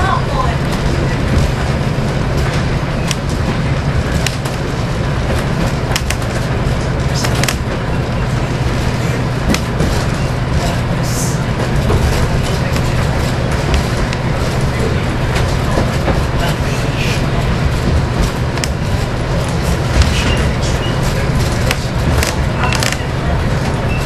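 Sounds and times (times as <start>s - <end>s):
diesel train engine drone: 0.0s - 24.0s
wheels rumbling on track: 0.0s - 24.0s
sharp clicks and knocks: 2.4s - 7.8s, 9.4s - 10.2s, 11.6s - 16.6s, 17.5s - 23.8s.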